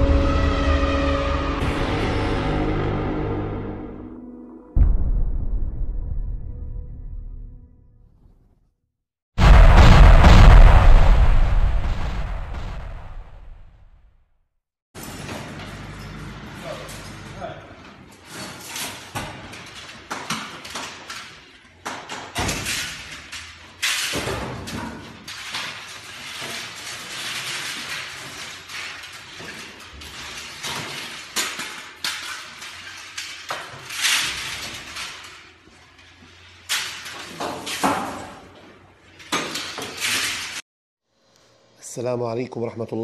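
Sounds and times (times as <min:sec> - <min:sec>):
metal pipes clattering onto pile: 0:18.1 - 0:40.6.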